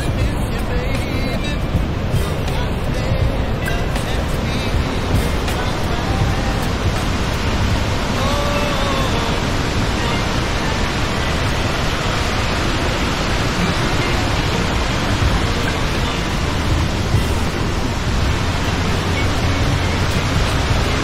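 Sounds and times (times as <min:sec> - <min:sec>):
heavy falling water: 0:00.0 - 0:21.0.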